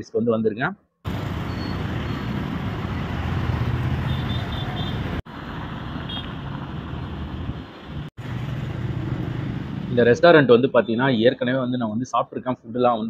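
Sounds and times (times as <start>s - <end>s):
road traffic passing: 1.0s - 11.2s.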